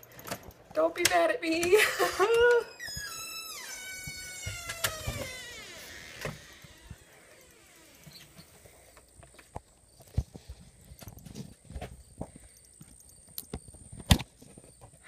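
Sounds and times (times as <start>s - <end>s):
door hinge creaking: 2.0s - 8.6s.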